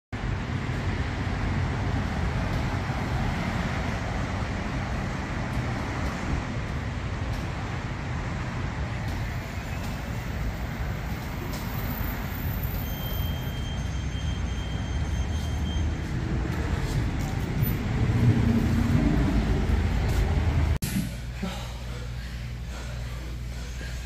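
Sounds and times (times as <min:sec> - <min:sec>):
road traffic rumble: 0:00.1 - 0:24.0.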